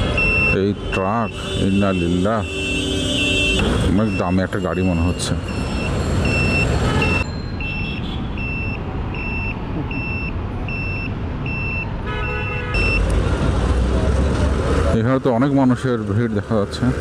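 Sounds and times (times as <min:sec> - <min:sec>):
road rumble: 0:00.0 - 0:17.0
vehicle horn: 0:00.9 - 0:04.2, 0:06.7 - 0:07.2, 0:12.0 - 0:12.9
high electronic beeper: 0:03.8 - 0:11.8.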